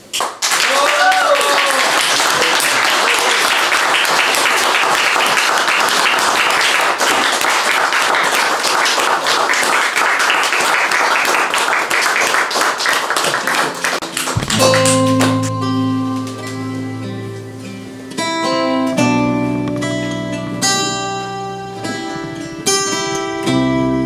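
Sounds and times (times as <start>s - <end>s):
audience applauding: 0.2s - 15.8s.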